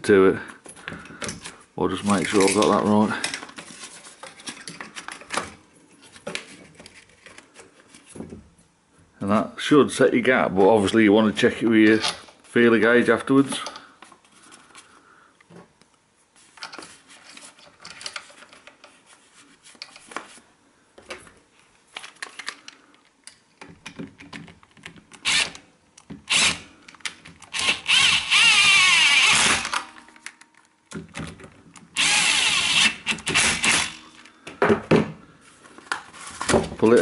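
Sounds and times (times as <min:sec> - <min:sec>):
cordless drill running: 0:25.2 - 0:25.6, 0:26.3 - 0:26.6, 0:27.5 - 0:29.9, 0:32.0 - 0:34.1.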